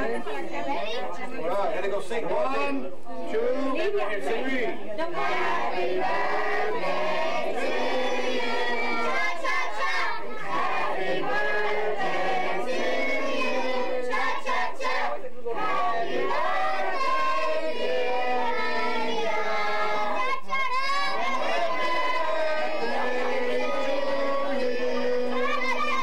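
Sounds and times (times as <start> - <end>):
children shouting and chattering: 0.0 - 1.6, 7.4 - 10.8, 18.2 - 26.0.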